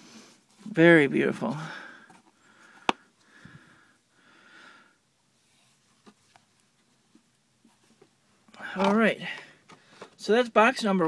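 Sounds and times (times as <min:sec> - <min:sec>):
faint nose breaths: 0:01.6 - 0:05.8.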